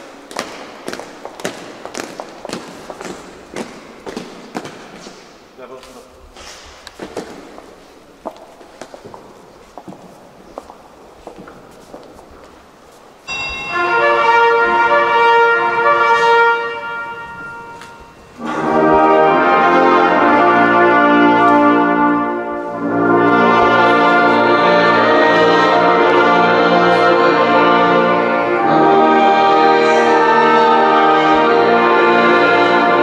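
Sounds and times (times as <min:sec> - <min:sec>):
brass band playing chords: 0:13.3 - 0:33.0.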